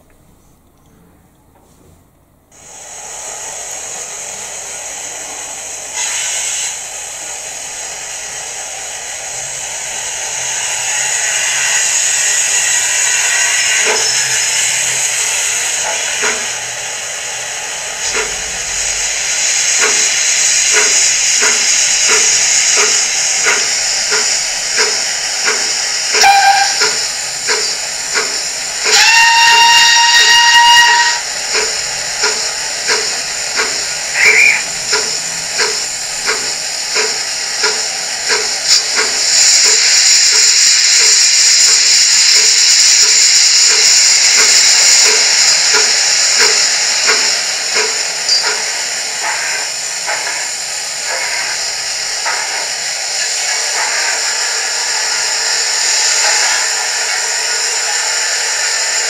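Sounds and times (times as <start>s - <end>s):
steam hiss with chuffs: 2.5s - 59.0s
steam whistle: 26.1s - 27.0s, 28.8s - 31.3s, 34.2s - 34.7s.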